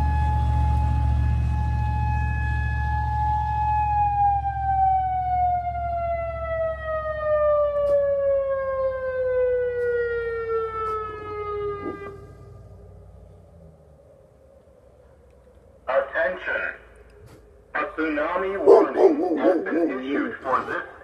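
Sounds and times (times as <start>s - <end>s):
siren winding down: 0.0s - 15.8s.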